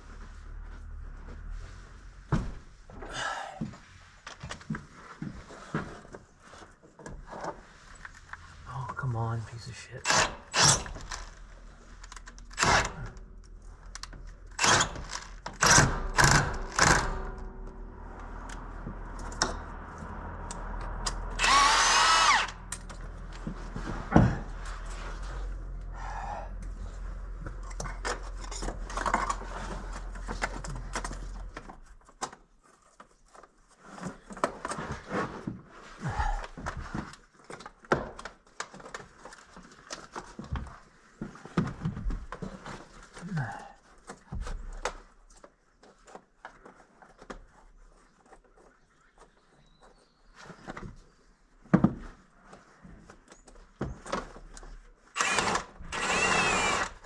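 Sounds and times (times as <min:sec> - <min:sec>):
power tool running: 0:21.3 - 0:22.6, 0:55.2 - 0:57.0.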